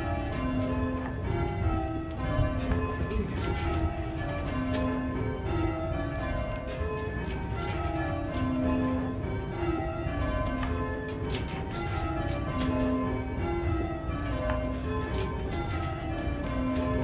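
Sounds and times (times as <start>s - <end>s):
church bells ringing: 0.0s - 17.0s.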